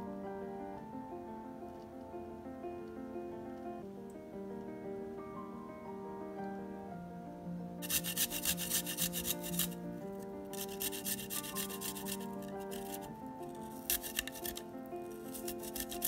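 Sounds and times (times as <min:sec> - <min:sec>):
light background music: 0:00.0 - 0:16.0
garlic grating rasps: 0:07.8 - 0:09.8, 0:10.5 - 0:16.0.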